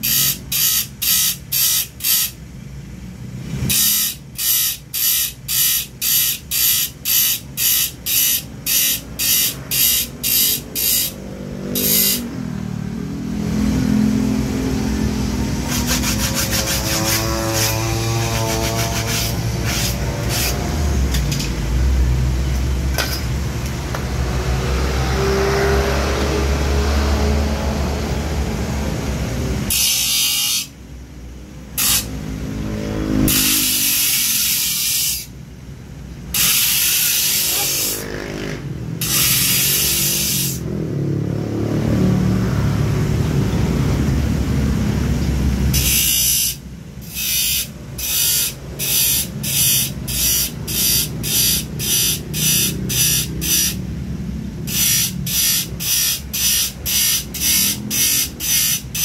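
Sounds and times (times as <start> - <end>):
electric grinder grinding steel: 8.8 - 12.2, 15.6 - 20.6, 36.4 - 38.1, 39.0 - 40.6, 54.7 - 59.0.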